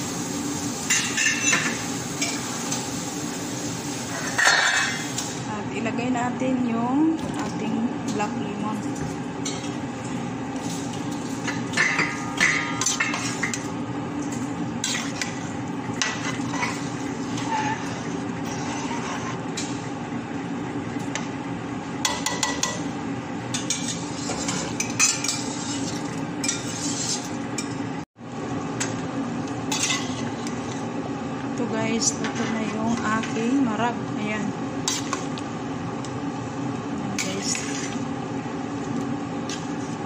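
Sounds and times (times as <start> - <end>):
steady background hum: 0.0 - 40.0
metal ladle scraping a pot: 16.0 - 19.7, 23.5 - 27.4, 29.7 - 30.9, 34.8 - 35.3, 37.2 - 38.0.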